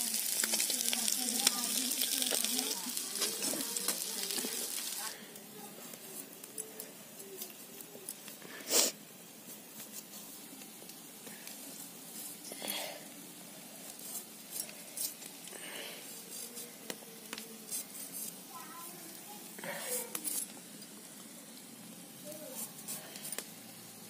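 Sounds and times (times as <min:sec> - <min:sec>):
blade scraping potato skin: 0:22.5 - 0:23.6.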